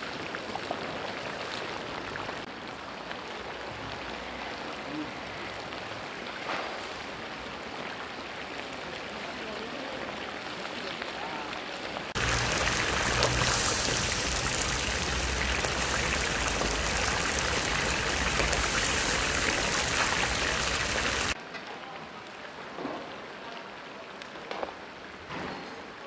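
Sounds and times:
meat sizzling in hot oil: 0:12.2 - 0:21.4.

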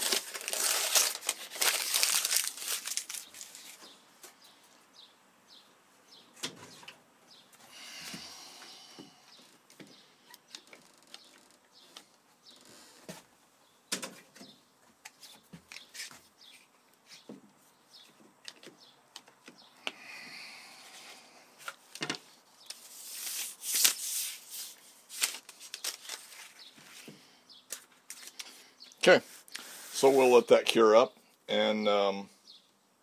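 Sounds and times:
scraping rustle: 0:29.2 - 0:30.5.

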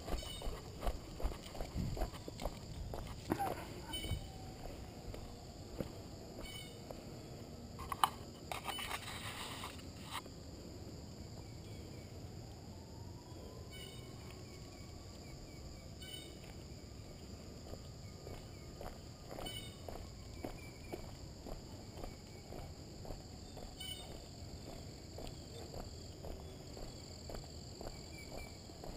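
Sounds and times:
footsteps on asphalt: 0:00.0 - 0:08.1, 0:16.4 - 0:28.9
insects chirring: 0:00.0 - 0:28.9.

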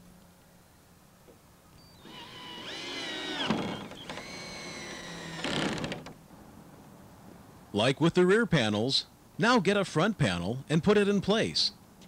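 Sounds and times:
cordless drill motor whine: 0:02.0 - 0:05.9.

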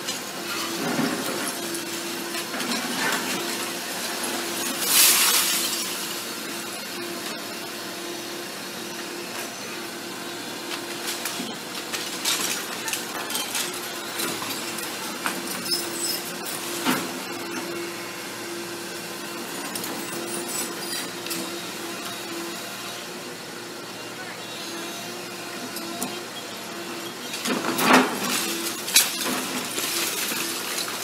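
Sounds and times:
masonry cracking and clattering: 0:27.4 - 0:31.0.

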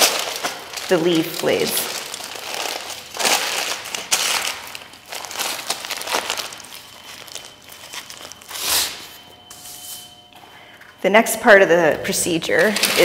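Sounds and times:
aluminium foil crinkling: 0:00.0 - 0:09.2, 0:12.5 - 0:13.0.

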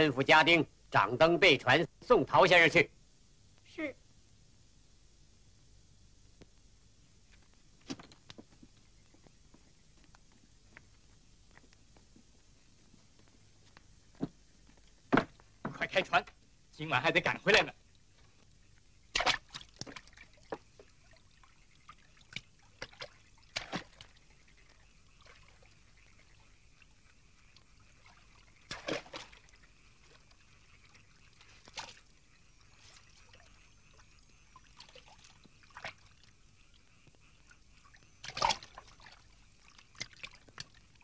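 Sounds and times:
faint hiss: 0:00.0 - 0:41.0
water splashing and dripping: 0:17.1 - 0:41.0.

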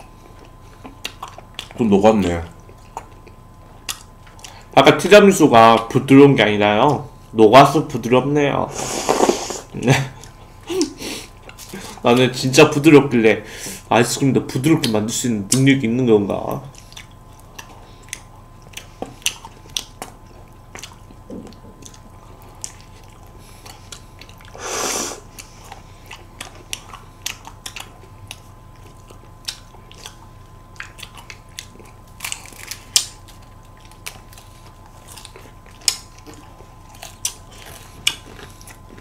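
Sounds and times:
eating ice cream mouth sounds: 0:00.0 - 0:04.7, 0:16.5 - 0:39.0.

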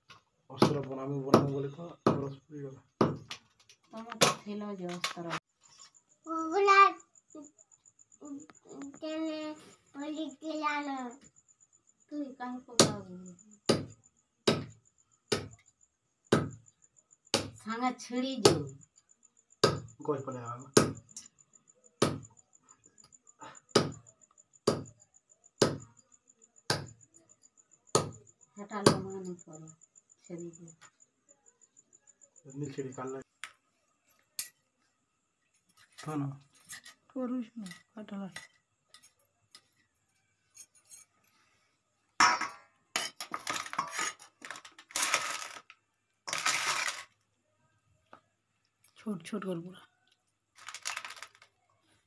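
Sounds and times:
steel bowl and knife clattering: 0:42.2 - 0:45.6.

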